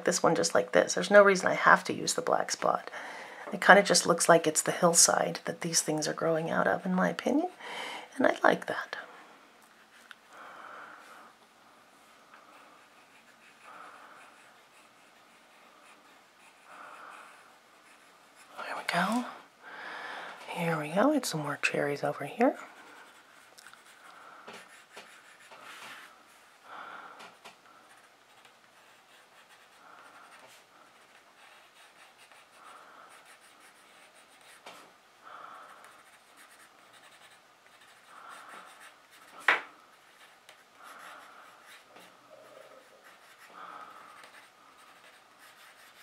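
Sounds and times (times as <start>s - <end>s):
pencil scratching on paper: 12.4s - 19.3s, 20.7s - 26.6s, 27.4s - 34.8s, 35.7s - 46.0s.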